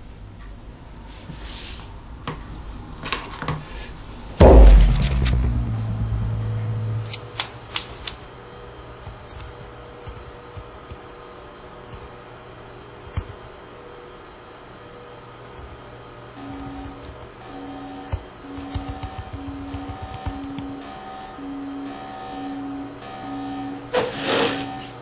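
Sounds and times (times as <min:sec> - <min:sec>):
loud thud with low rumble: 0:04.4 - 0:07.4.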